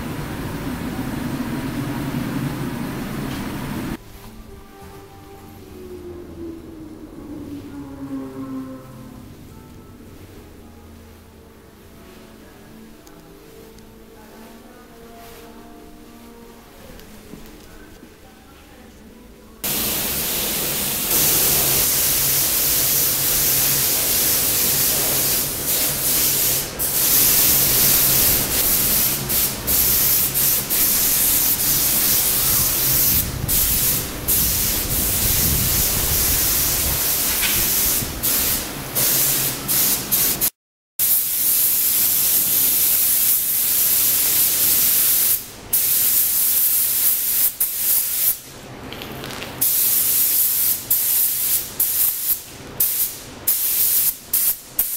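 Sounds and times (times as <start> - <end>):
paint spray gun hissing: 19.6 - 48.4, 49.6 - 54.9.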